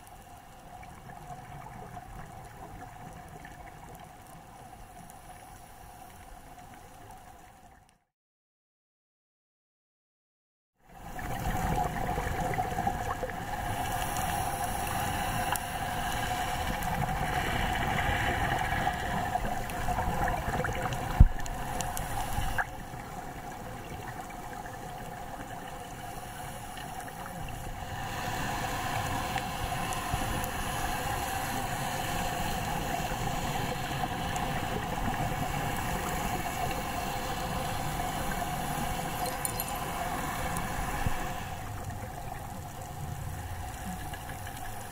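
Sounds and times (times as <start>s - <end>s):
watery hiss and gurgle: 0.0s - 7.8s, 10.8s - 44.9s
underwater boat motor drone: 11.0s - 44.9s.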